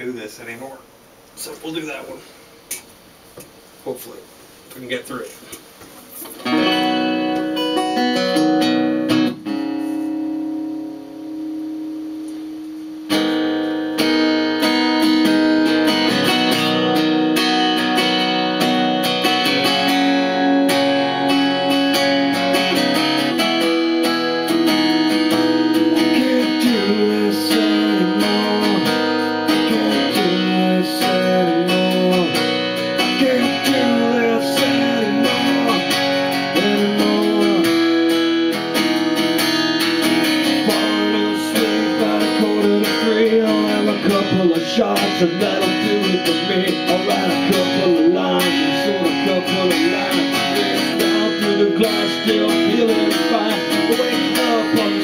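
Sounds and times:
acoustic guitar strumming: 6.1s - 55.0s
man singing: 19.2s - 38.6s, 40.3s - 55.0s.

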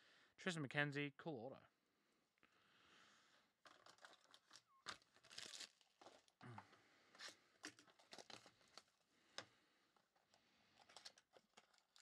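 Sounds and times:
plastic wrap crinkling: 3.6s - 6.4s, 7.2s - 8.9s, 10.8s - 12.0s.

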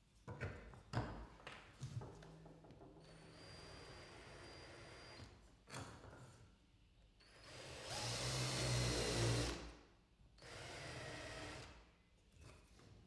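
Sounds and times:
cordless drill cutting into wood: 3.1s - 5.3s, 7.2s - 9.7s, 10.4s - 11.8s.

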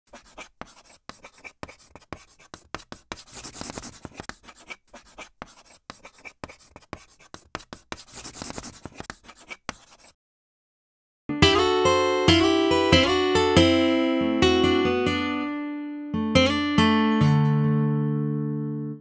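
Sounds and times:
chalk scratching on chalkboard: 0.1s - 10.2s.

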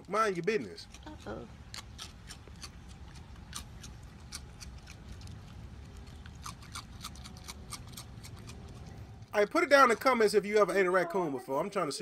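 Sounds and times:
low steady hum: 0.0s - 12.0s
animal crunching cereal: 0.1s - 9.3s.

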